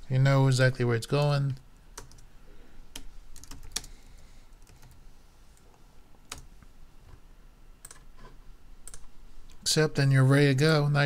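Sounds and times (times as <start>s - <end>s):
computer keys clicking: 2.0s - 2.3s, 2.9s - 3.9s, 4.6s - 5.0s, 6.3s - 6.5s, 8.8s - 9.1s.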